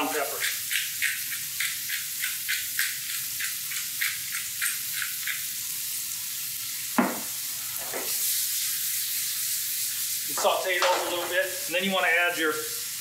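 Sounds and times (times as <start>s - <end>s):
pepper mill grinding: 0.4s - 5.5s
vegetables sizzling in a pan: 0.7s - 13.0s
sharp knock: 7.0s - 7.2s, 10.4s - 11.6s.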